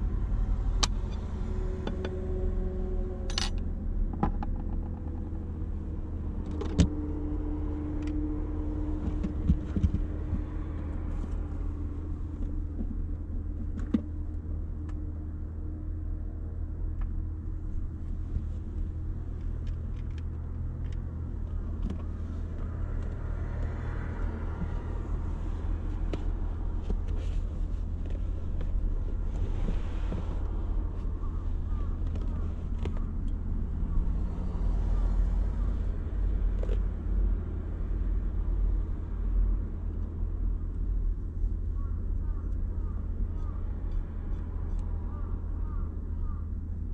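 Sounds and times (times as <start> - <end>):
steady low rumble: 0.0 - 46.9
rustling and small knocks: 4.1 - 5.6, 8.9 - 11.5, 18.1 - 31.1.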